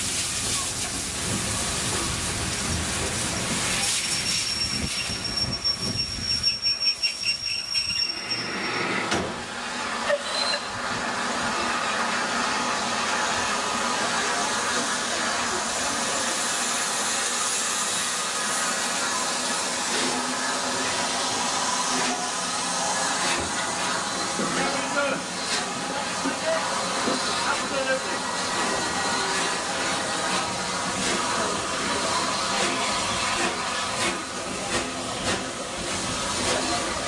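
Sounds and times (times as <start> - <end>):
steam hissing: 0.0 - 37.0
pulsing noise with high squeal: 4.0 - 9.1.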